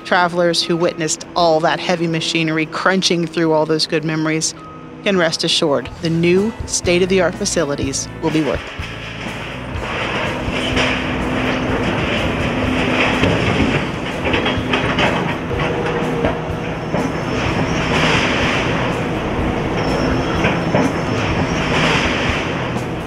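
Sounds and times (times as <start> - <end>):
diesel excavator running: 0.0 - 23.0
debris crunching and clattering: 8.3 - 19.4.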